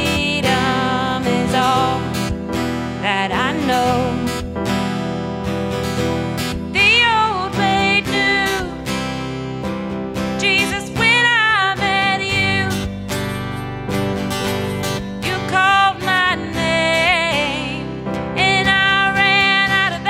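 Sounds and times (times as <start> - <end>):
person singing with vibrato: 0.0 - 4.8, 6.7 - 9.0, 10.3 - 13.5, 15.2 - 20.0
digital piano: 0.0 - 20.0
electric bass: 0.0 - 20.0
strummed acoustic guitar: 0.0 - 20.0.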